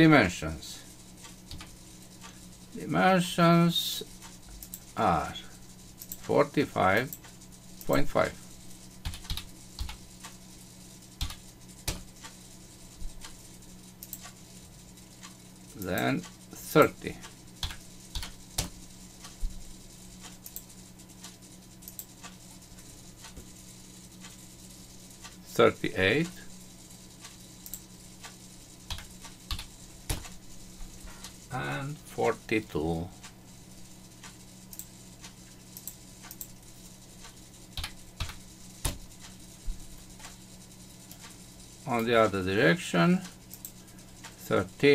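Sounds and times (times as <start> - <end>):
faint steady low hum: 0.0 - 44.9
computer mouse clicks: 4.2 - 4.9, 6.0 - 6.3, 9.0 - 10.4, 11.2 - 12.4, 14.0 - 14.4, 17.2 - 19.4, 20.2 - 22.4, 27.2 - 30.4, 34.2 - 34.9, 35.8 - 36.6, 37.2 - 39.4, 43.5 - 44.4.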